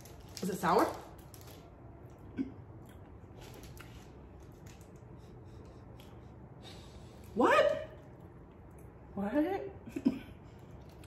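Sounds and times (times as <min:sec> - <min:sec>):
faint chewing: 0:01.2 - 0:07.4, 0:08.0 - 0:09.1, 0:10.4 - 0:11.0.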